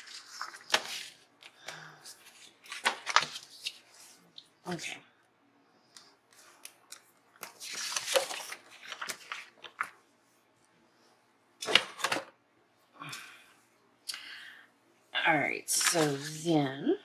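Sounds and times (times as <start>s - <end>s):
paper crinkling rustles: 0.0s - 4.5s, 6.3s - 10.0s, 15.7s - 16.4s.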